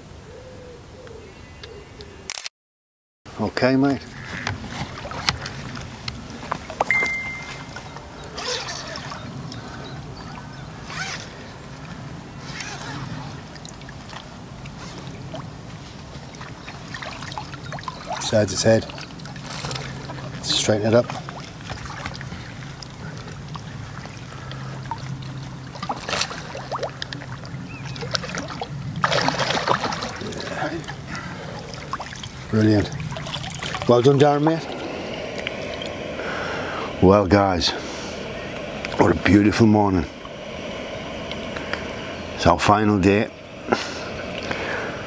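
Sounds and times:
water splashing and sloshing: 3.8s - 45.0s
short high steady tone: 6.9s - 7.9s.

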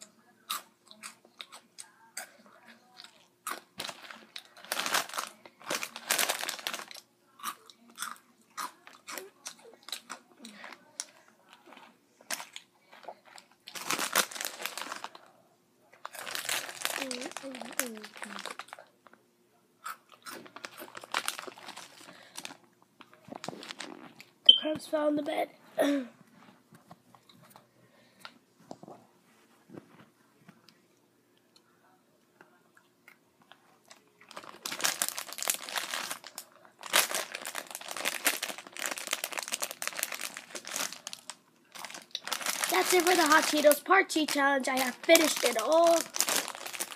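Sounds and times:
chips crunching: 3.0s - 15.2s, 16.0s - 18.9s, 19.8s - 24.3s, 33.9s - 46.9s
plastic chip bag crinkling: 3.4s - 15.3s, 16.0s - 19.2s, 20.1s - 24.3s, 33.9s - 46.9s.

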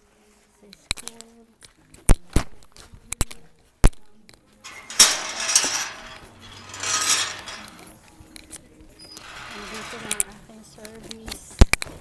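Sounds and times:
gate scraping: 4.6s - 8.0s, 9.0s - 10.5s
metal gate clanking: 4.6s - 8.0s, 9.0s - 10.4s.

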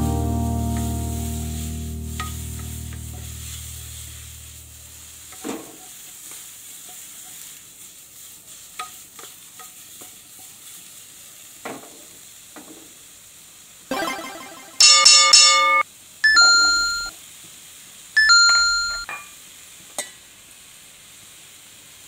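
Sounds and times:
food sizzling in a wok: 0.0s - 13.9s, 15.8s - 22.0s
wooden spatula scraping a pan: 5.1s - 10.9s.

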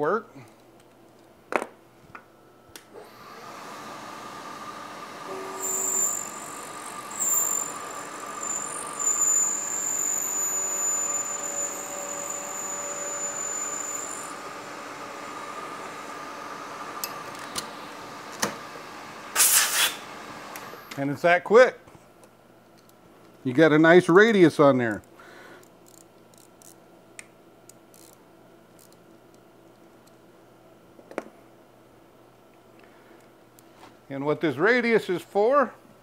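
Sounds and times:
milling machine hum: 3.0s - 19.4s
high thin cutting squeal: 5.3s - 14.7s, 19.4s - 20.1s.

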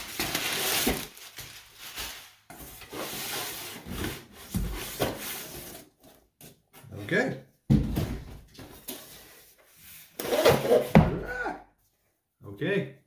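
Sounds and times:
packing paper rustling: 0.0s - 4.2s.

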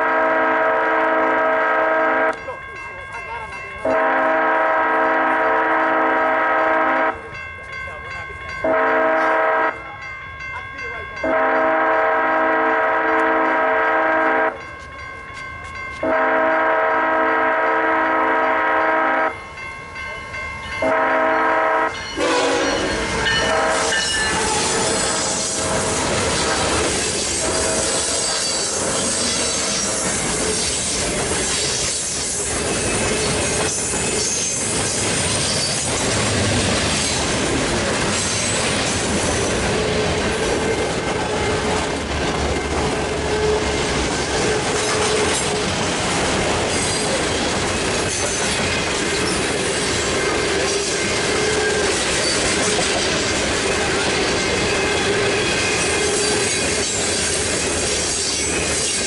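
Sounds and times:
locomotive air horn blasts: 0.0s - 2.3s, 3.8s - 7.2s, 8.6s - 9.8s, 11.2s - 14.6s, 16.0s - 19.4s, 20.8s - 26.7s
train wheels clacking on rails: 21.9s - 59.0s
wheel squeal: 27.2s - 34.7s, 50.7s - 52.8s, 54.4s - 59.0s.

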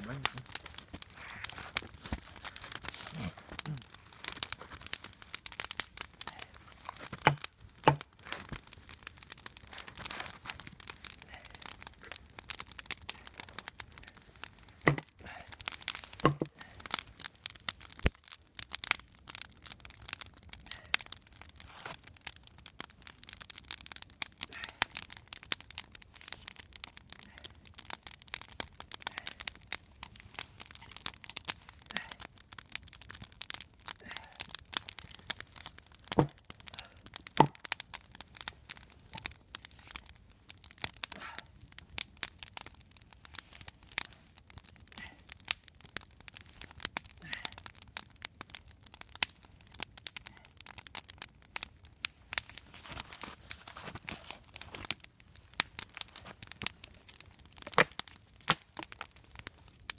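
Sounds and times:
wood fire crackling: 0.0s - 59.9s
louder snaps and knocks: 7.1s - 8.0s, 14.8s - 15.1s.

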